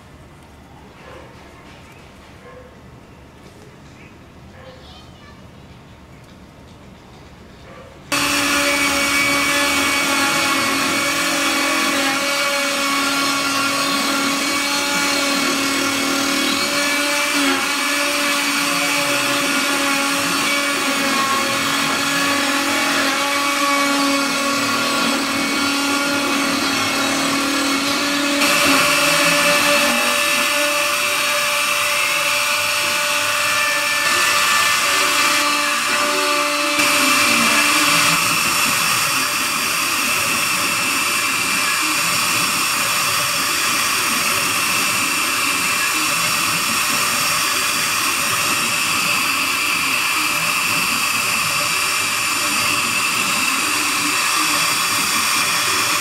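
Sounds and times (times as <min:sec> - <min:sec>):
router spindle whining: 0:08.1 - 0:56.0.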